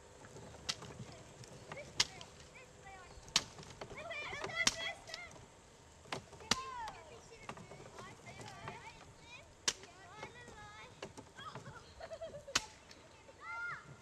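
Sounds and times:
sharp clicks: 0.6s - 2.5s.

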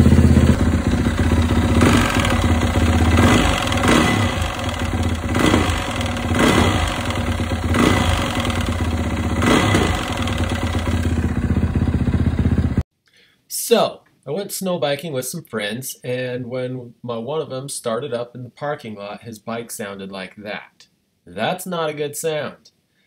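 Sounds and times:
engine knocking clatter: 0.0s - 12.8s
motorcycle engine revving: 0.0s - 12.8s.

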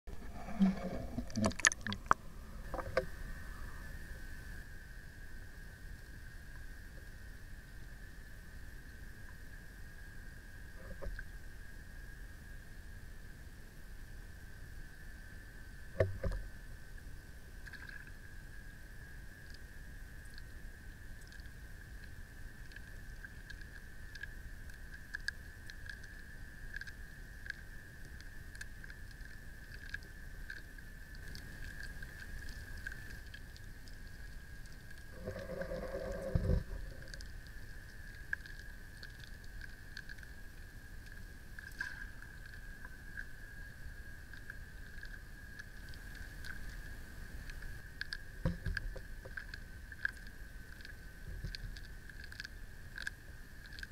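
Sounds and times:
low underwater rumble: 0.1s - 7.2s, 28.2s - 51.9s
faint clicks: 21.2s - 43.4s, 44.2s - 53.9s.

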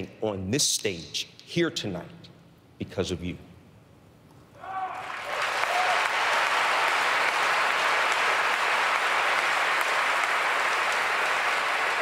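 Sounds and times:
large audience applauding: 4.9s - 12.0s.

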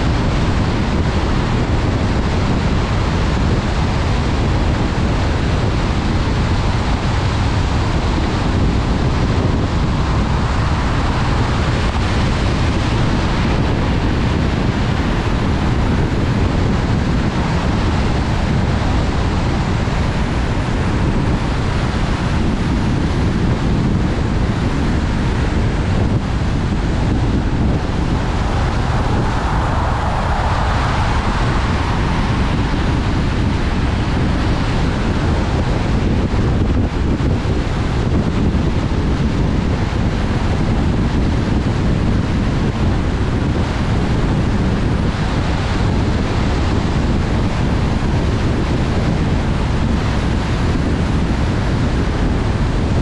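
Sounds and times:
car road and wind noise: 0.0s - 53.0s
tyres hissing on wet road: 27.5s - 34.6s.

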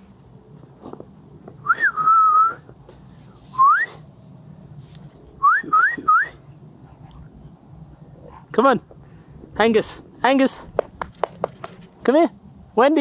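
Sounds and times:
person whistling: 1.6s - 2.6s, 3.5s - 4.0s, 5.4s - 6.4s.

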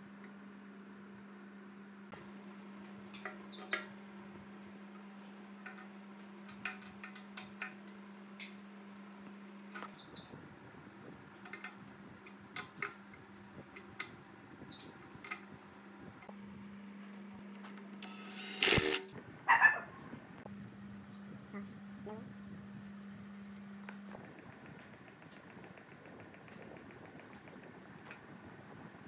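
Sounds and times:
steady low hum: 0.0s - 29.0s
spanner tapping metal fittings: 24.2s - 27.6s.

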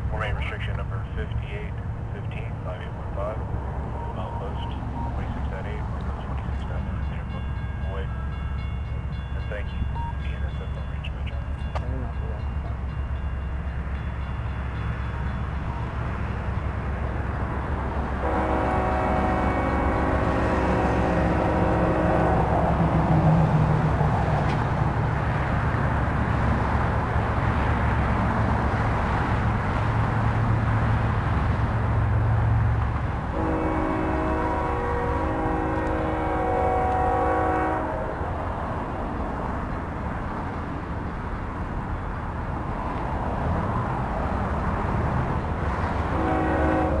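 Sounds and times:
diesel engine rumble: 0.0s - 47.0s
locomotive air horn blasts: 18.2s - 22.6s, 33.3s - 38.2s, 46.1s - 47.0s.

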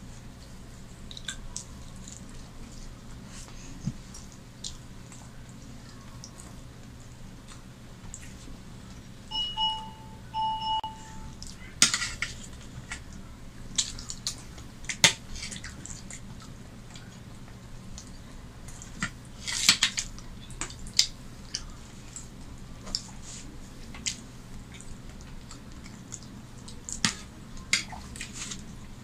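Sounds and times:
short steady tones: 9.3s - 11.4s.

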